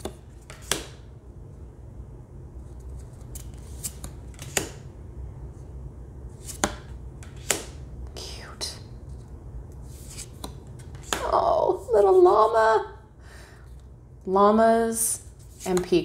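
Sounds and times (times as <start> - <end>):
cards snapping and sliding: 0.0 - 1.0, 2.8 - 4.9, 6.4 - 7.8, 9.8 - 11.2.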